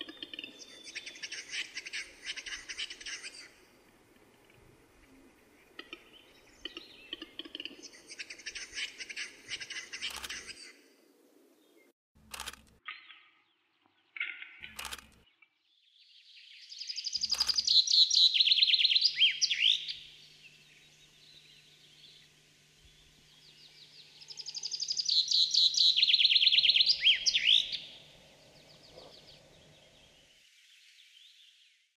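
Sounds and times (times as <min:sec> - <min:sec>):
songbird singing: 0:00.0 - 0:32.0
sharp click: 0:10.1 - 0:10.4, 0:12.2 - 0:12.8, 0:14.6 - 0:15.2, 0:17.2 - 0:17.7.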